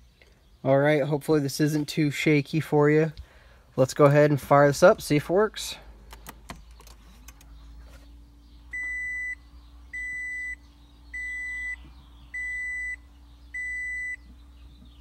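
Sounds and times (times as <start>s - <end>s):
faint steady hum: 0.0s - 15.0s
dashboard warning chime beeping: 8.7s - 14.3s.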